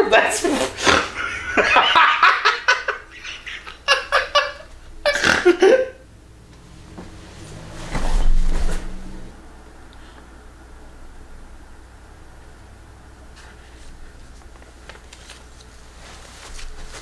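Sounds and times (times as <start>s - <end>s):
man laughing hysterically: 0.8s - 6.0s.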